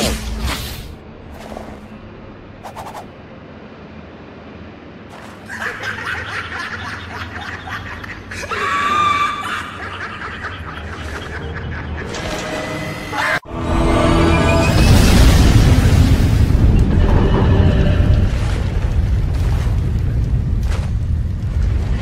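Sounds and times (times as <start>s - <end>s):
stuttering cackling laughter: 5.4s - 12.4s.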